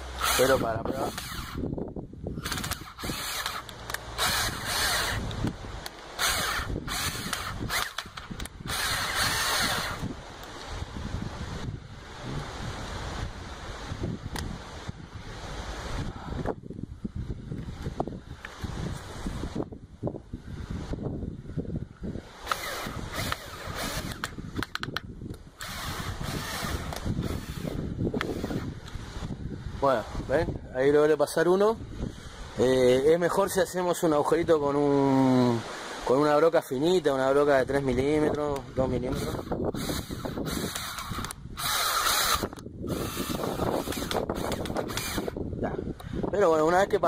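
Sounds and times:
power drill driving a screw: 0:00.2 - 0:01.6, 0:02.4 - 0:05.3, 0:06.2 - 0:10.1, 0:22.4 - 0:24.4, 0:25.6 - 0:28.7, 0:39.1 - 0:45.4
sharp clicks: 0:02.4 - 0:10.7, 0:22.4 - 0:29.0, 0:38.3 - 0:45.3.

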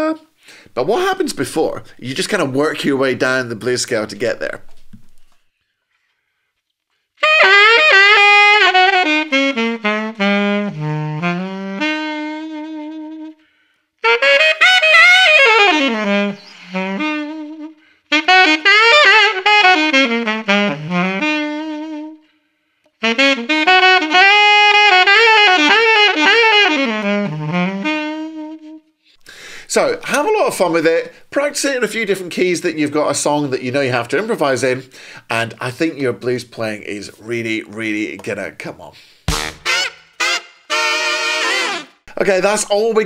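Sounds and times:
alto saxophone blues licks: 0:07.0 - 0:32.2, 0:37.2 - 0:43.0.

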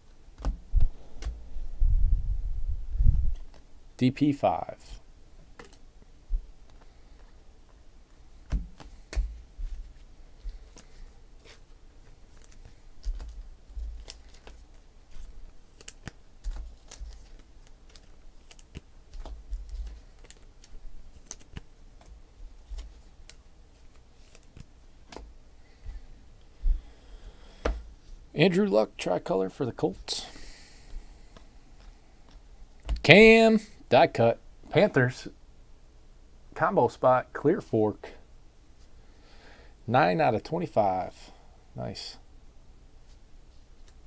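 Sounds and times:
hands handling trading cards: 0:00.4 - 0:01.4, 0:05.5 - 0:05.8, 0:06.6 - 0:07.8, 0:08.4 - 0:25.3, 0:31.3 - 0:33.0.

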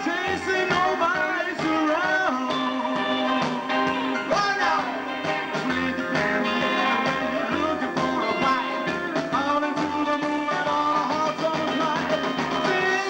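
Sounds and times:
drums: 0:00.0 - 0:13.0
live rockabilly band: 0:00.0 - 0:13.0
upright double bass: 0:00.0 - 0:13.0.

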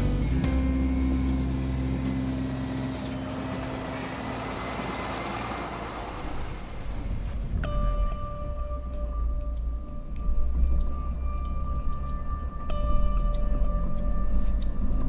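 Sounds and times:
truck diesel engine running: 0:00.0 - 0:15.0
rushing noise: 0:00.9 - 0:08.2.

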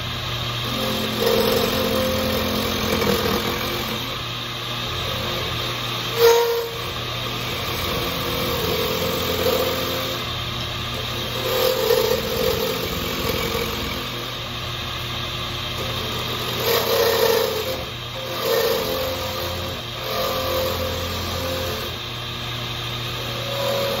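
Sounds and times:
power tool motor running: 0:00.0 - 0:24.0.

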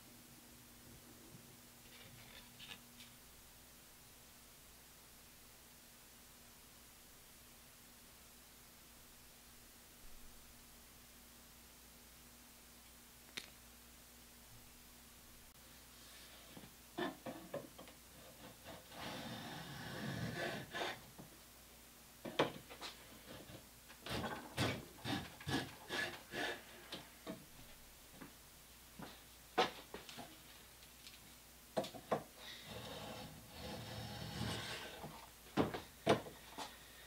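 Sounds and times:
scraping against wood: 0:22.3 - 0:27.1, 0:32.1 - 0:36.7.

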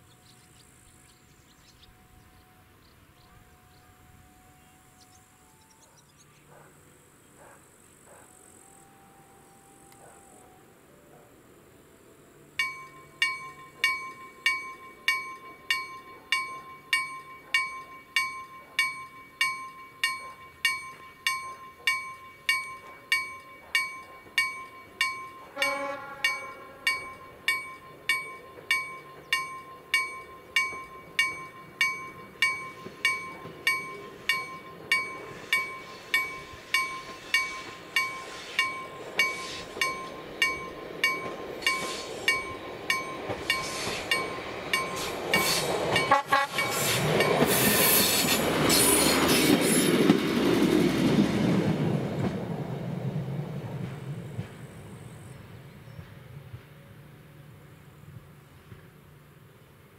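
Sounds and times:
train rumble: 0:00.0 - 0:59.9
level crossing warning bell: 0:12.6 - 0:48.8.

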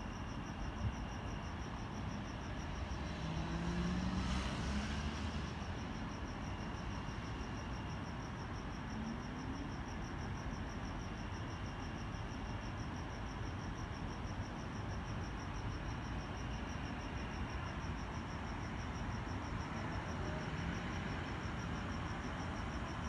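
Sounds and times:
crickets chirping: 0:00.0 - 0:23.0
vehicle passing: 0:02.6 - 0:05.9.

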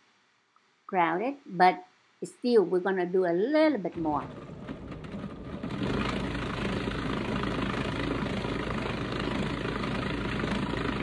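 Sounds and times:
food processor grinding meat: 0:04.3 - 0:11.0.

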